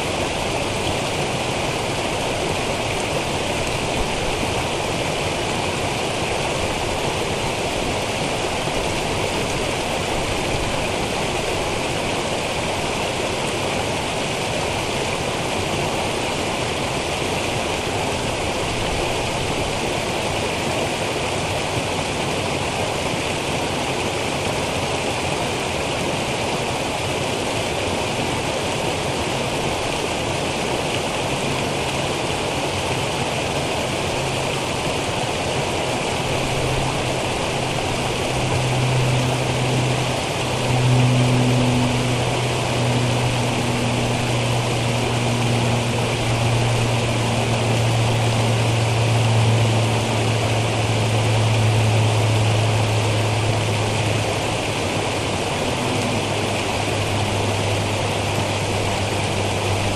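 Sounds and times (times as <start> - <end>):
stream cascading over rocks: 0.0 - 59.9.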